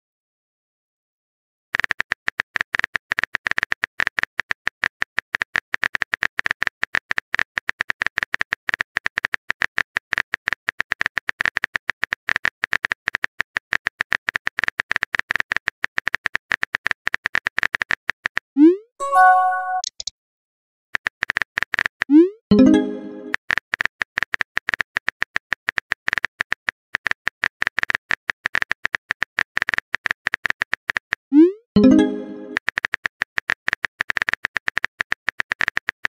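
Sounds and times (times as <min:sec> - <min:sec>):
brief chime: 0:19.0 - 0:19.9
phone keyboard typing clicks: 0:19.0 - 0:20.1.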